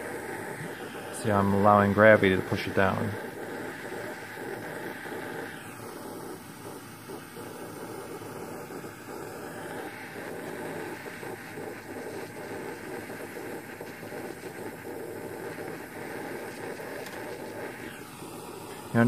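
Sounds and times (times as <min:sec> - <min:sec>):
torch flame rushing: 0:00.0 - 0:19.0.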